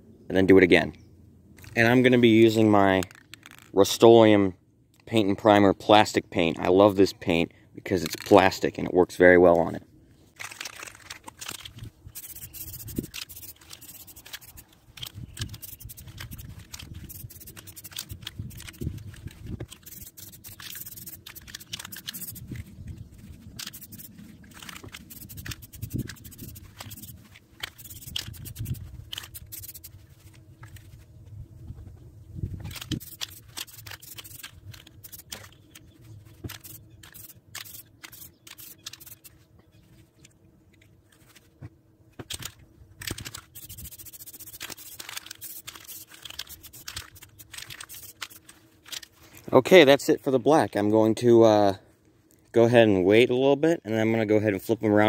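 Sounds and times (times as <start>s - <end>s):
aerosol spray can hissing: 12.2s - 14.7s, 15.4s - 22.6s, 23.6s - 24.2s, 24.9s - 30.0s, 32.9s - 35.4s, 36.5s - 39.3s, 43.4s - 48.4s.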